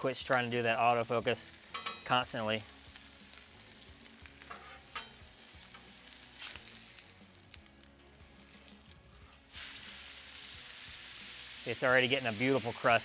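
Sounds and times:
steak sizzling on griddle: 0:00.0 - 0:13.0
metal spatula scraping griddle: 0:04.4 - 0:06.6.

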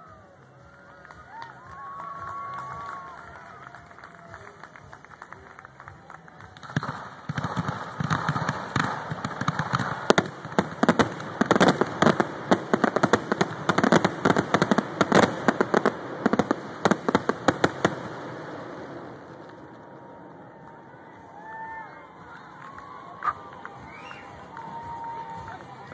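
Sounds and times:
fireworks crackling and banging: 0:00.0 - 0:25.9.

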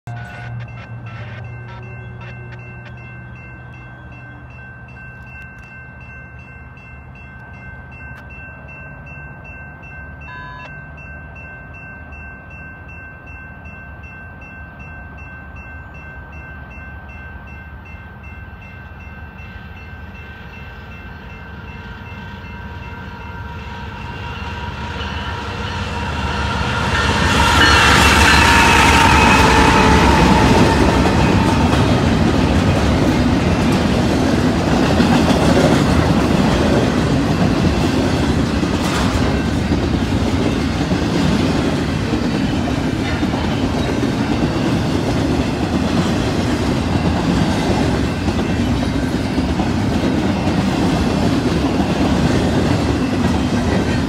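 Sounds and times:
locomotive engines and wheels rumbling: 0:00.0 - 0:54.0
train horn: 0:00.1 - 0:02.4, 0:10.2 - 0:10.8, 0:21.5 - 0:32.9
crossing warning bell ringing: 0:00.1 - 0:54.0.

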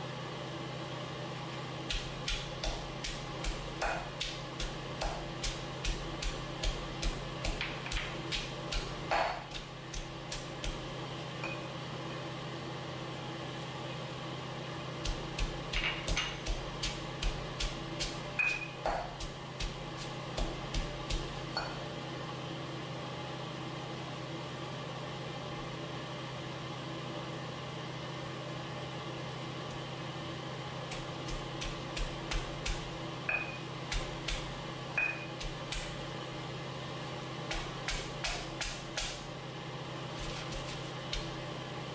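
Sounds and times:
steady low hum: 0:00.0 - 0:41.9
stone pestle pounding in mortar: 0:01.9 - 0:10.9, 0:15.0 - 0:21.8, 0:30.9 - 0:36.0, 0:37.5 - 0:39.2, 0:40.2 - 0:41.3.

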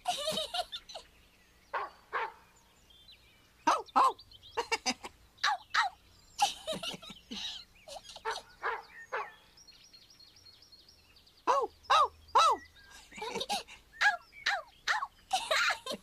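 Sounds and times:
birds chirping: 0:00.0 - 0:16.0
dog barking: 0:01.8 - 0:02.4, 0:08.2 - 0:09.4.

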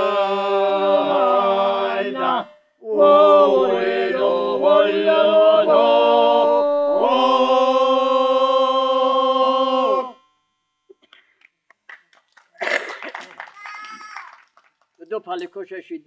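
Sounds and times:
men singing in harmony: 0:00.0 - 0:10.3.

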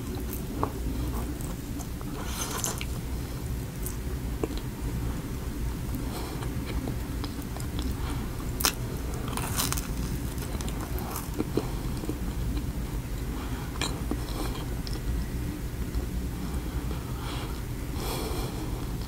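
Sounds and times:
steady low hum: 0:00.0 - 0:19.0
wet chewing with biting snaps: 0:08.6 - 0:12.7.

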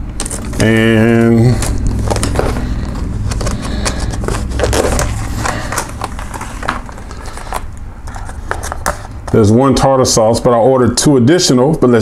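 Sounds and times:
steady low hum: 0:00.0 - 0:12.0
plastic bag and lid crinkling: 0:00.2 - 0:09.5.

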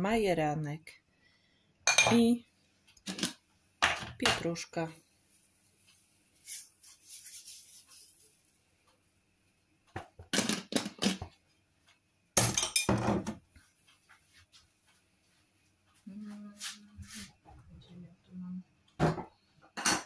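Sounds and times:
rustling and knocking in kitchen: 0:03.0 - 0:04.7, 0:09.9 - 0:16.0, 0:19.0 - 0:20.0.

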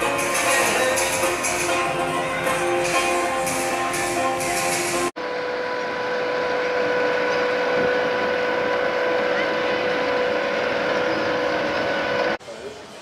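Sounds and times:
live band music: 0:00.0 - 0:05.1
boat engine humming: 0:00.0 - 0:12.9.

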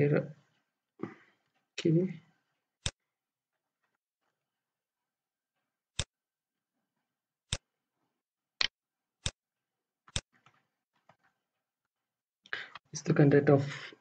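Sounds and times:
computer mouse clicks: 0:10.1 - 0:11.3.

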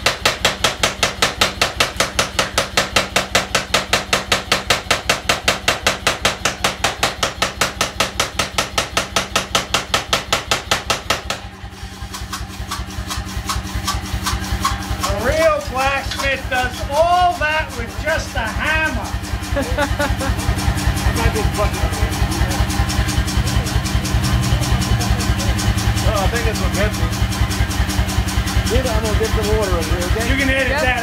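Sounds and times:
power hammer blows: 0:00.0 - 0:19.1
low running hum: 0:11.1 - 0:31.0.

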